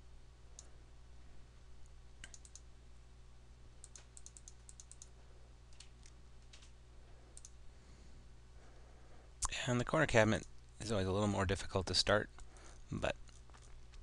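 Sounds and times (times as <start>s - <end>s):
steady low hum: 0.0s - 14.0s
computer mouse clicks: 2.2s - 2.7s, 3.8s - 6.7s, 7.4s - 7.6s.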